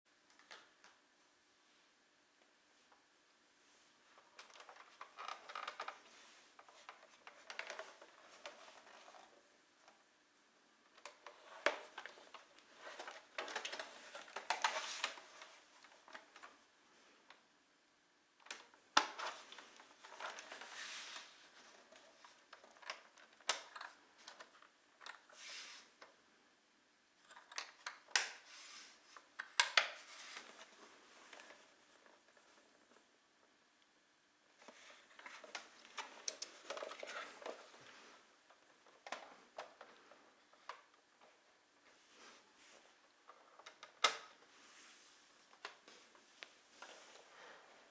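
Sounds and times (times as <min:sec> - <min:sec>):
plastic laptop case scraping and clicking: 0:04.4 - 0:09.3.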